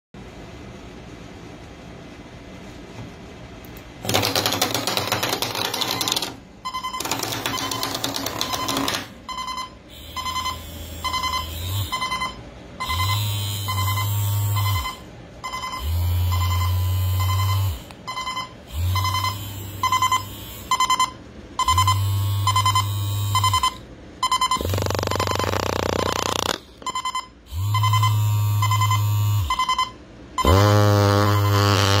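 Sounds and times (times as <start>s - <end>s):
bed shaker vibrating hum: 0.2s - 32.0s
buzzy alarm: 4.1s - 32.0s
rapid high beeps: 5.1s - 30.6s.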